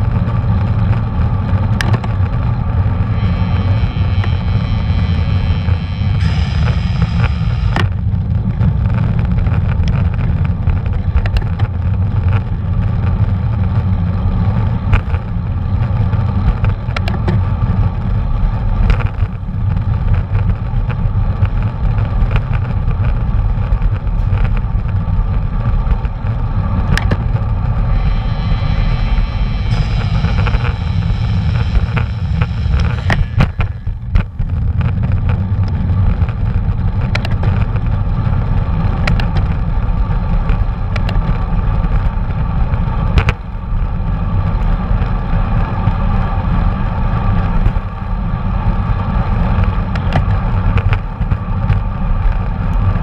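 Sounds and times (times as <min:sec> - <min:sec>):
wind and road rumble: 0:00.0 - 0:53.0.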